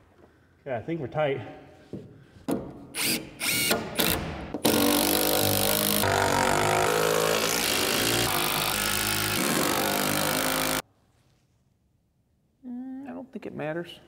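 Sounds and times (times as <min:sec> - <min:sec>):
cordless drill driving fasteners: 0:03.0 - 0:10.8.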